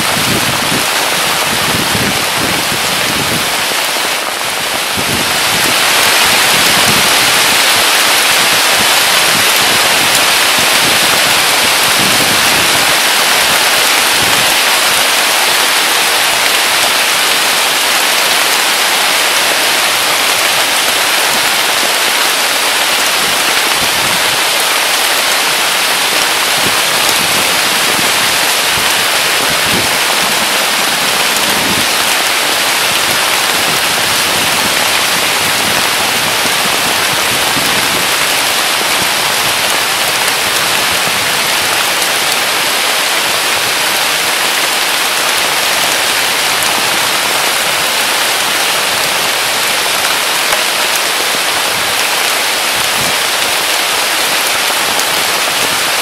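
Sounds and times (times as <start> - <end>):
heavy rain on foliage: 0.0 - 56.0.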